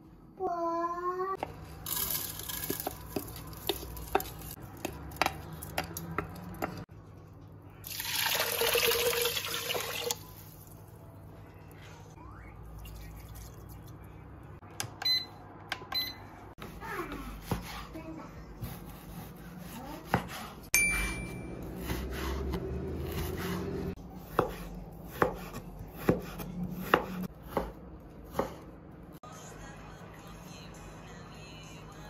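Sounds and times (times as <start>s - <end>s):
rice pouring into metal pot: 7.8s - 10.3s
water pouring and splashing: 7.8s - 10.8s.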